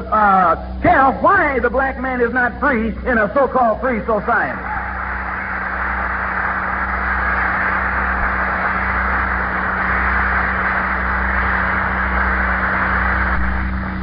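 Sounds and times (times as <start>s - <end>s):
electrical hum: 0.0s - 14.0s
audience applause: 4.6s - 14.0s.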